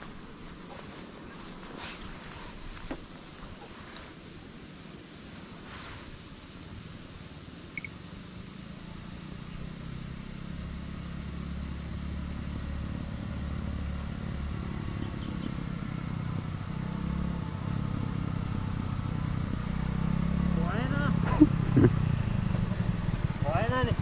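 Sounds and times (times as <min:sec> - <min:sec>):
vehicle engine running: 0:07.7 - 0:24.0.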